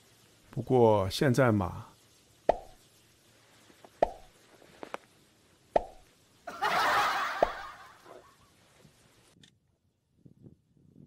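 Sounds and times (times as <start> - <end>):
loud hissing noise: 0.0 - 9.4
cartoon pop plops: 2.5 - 2.8, 4.0 - 4.3, 5.7 - 6.1.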